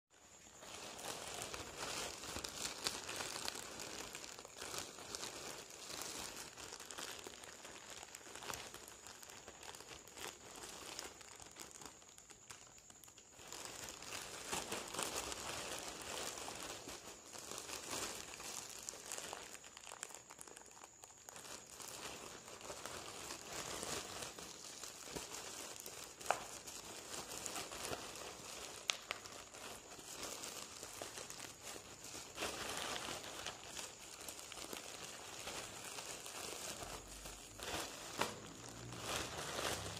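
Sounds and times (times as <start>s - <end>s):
plastic bag crinkling: 0.1s - 39.9s
plastic bag snaps: 26.2s - 26.6s, 37.6s - 39.0s.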